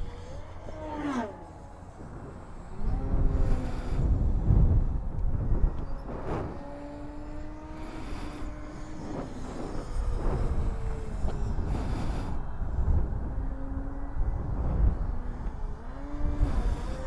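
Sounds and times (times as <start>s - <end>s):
model plane motor whining: 0.0s - 4.5s, 5.7s - 12.6s, 15.0s - 17.0s
wind on microphone: 0.0s - 17.0s.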